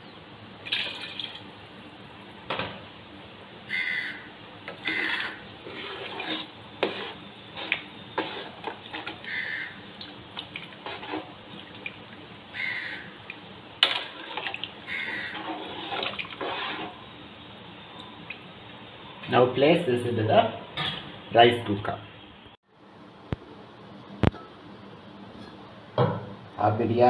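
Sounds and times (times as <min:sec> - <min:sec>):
liquid sloshing: 0:04.9 - 0:09.3, 0:13.8 - 0:17.0.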